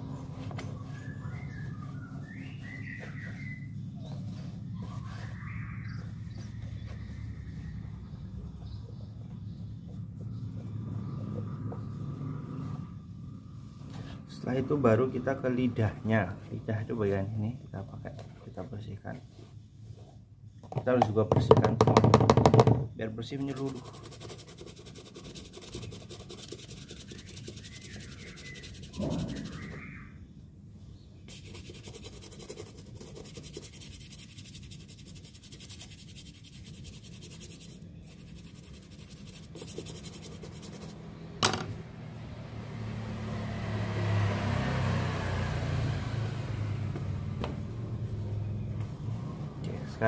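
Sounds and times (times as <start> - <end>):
cloth wiping fabric: 0.2 - 7.8, 23.5 - 29.8, 31.3 - 41.0
brush scrubbing a boot: 0.7 - 7.9, 23.4 - 29.9, 31.3 - 41.0.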